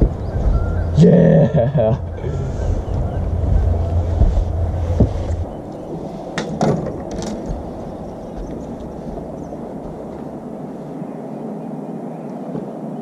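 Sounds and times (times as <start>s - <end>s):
wind rumble on microphone: 0.0s - 13.0s
fishing gear clicks and knocks: 6.4s - 10.3s.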